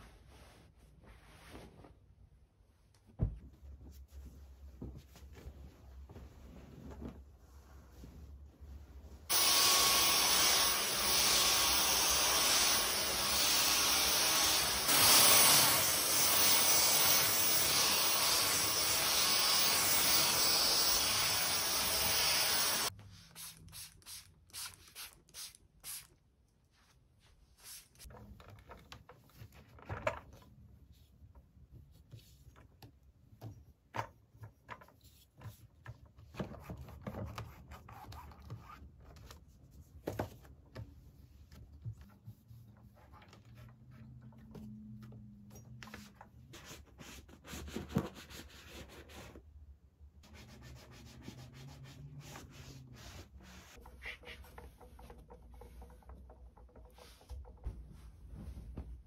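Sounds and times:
faint rustles and taps: 2.8 - 8.8, 53.8 - 59.0.

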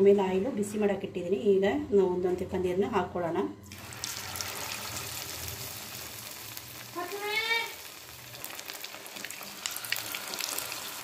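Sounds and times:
oil sizzling and crackling: 3.7 - 11.0.

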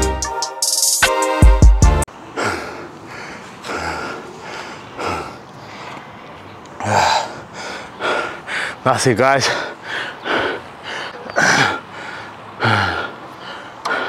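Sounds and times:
music with drum beat: 0.0 - 2.0
man breathing heavily: 2.1 - 14.0.

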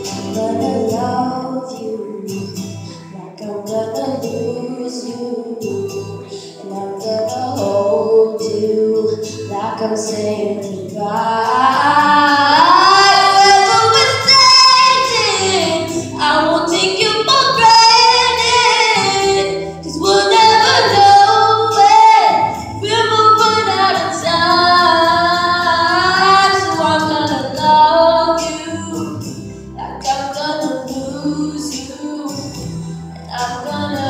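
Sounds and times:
girl singing into microphone: 0.0 - 34.0.

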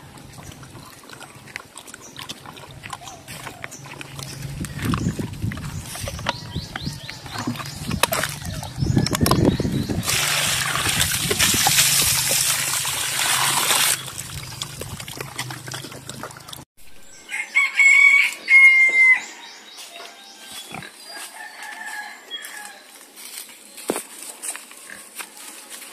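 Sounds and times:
pig grunting: 0.0 - 16.6
water pouring and splashing: 7.3 - 16.7
rooster crowing: 17.3 - 19.6, 21.1 - 23.0.

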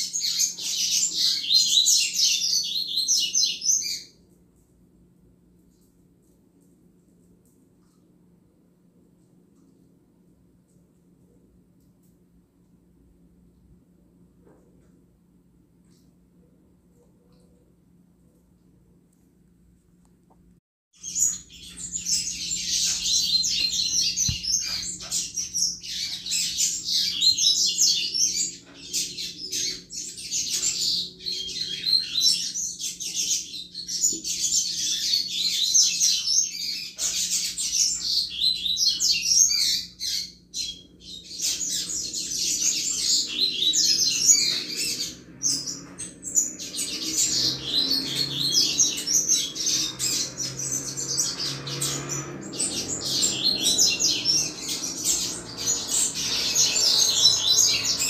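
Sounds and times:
bird twittering song: 0.0 - 4.2, 21.0 - 58.0.

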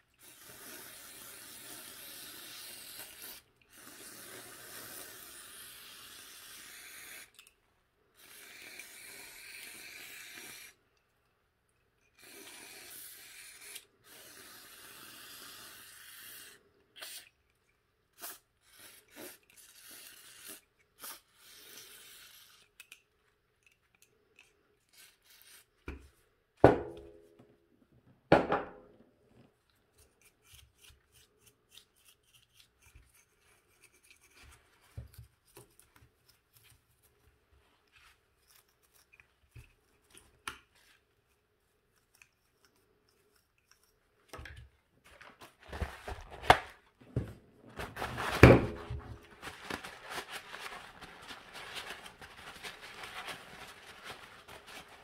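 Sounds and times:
paper towel rubbing and crinkling: 47.7 - 55.0.

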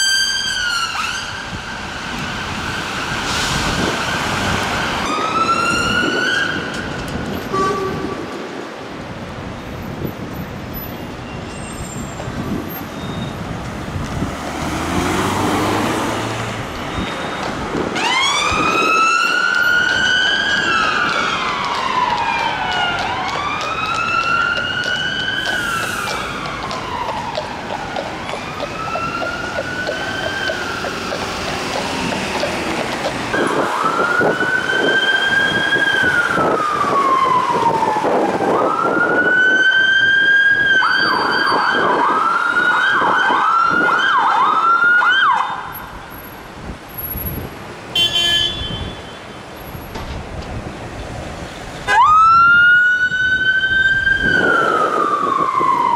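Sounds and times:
emergency vehicle siren wailing: 0.0 - 7.9, 14.5 - 46.0, 51.8 - 55.9
street traffic: 0.0 - 55.9.

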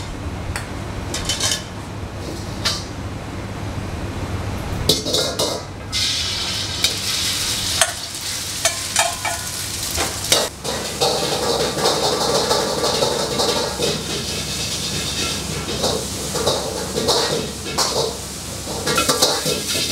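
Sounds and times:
food sizzling in a wok: 5.9 - 19.9
ladle clanking against wok: 7.8 - 19.9.

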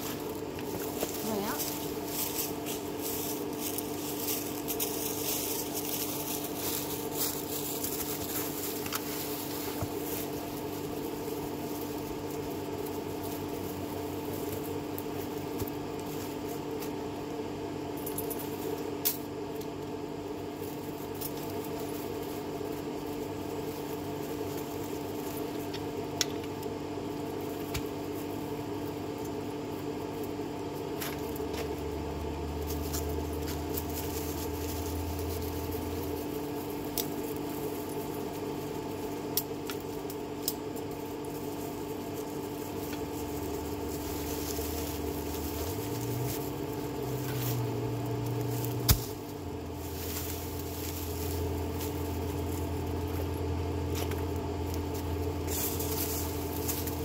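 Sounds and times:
vehicle engine running: 0.0 - 57.0
sharp clicks and rattles: 32.6 - 47.5.

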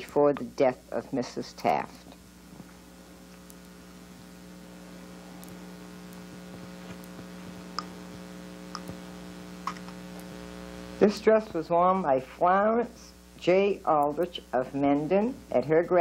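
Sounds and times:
electrical mains hum: 0.0 - 16.0
faint clicks: 8.7 - 9.0.

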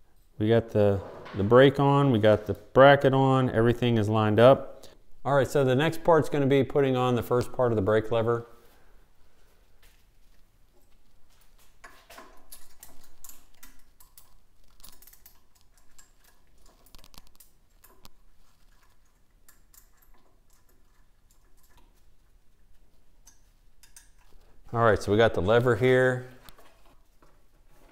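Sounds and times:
small metal parts clicking and clinking: 11.8 - 22.0, 23.2 - 24.4.

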